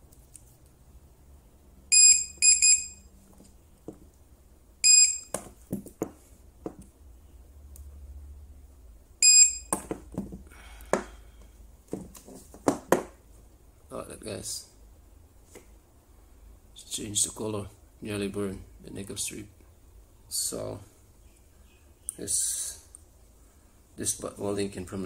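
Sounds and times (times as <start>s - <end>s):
high-pitched control board beeps: 1.9s - 3.1s, 4.8s - 5.3s, 9.2s - 9.7s.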